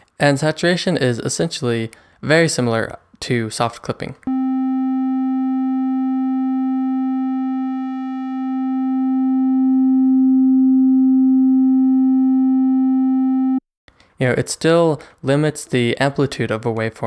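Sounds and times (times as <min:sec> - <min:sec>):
buzzy sine-wave test tone: 0:04.3 - 0:13.6.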